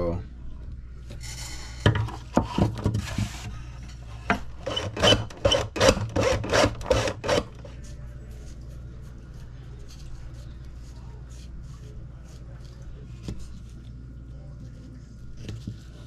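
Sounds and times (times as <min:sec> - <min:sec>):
hacksaw cutting wood: 0:04.6 - 0:07.5.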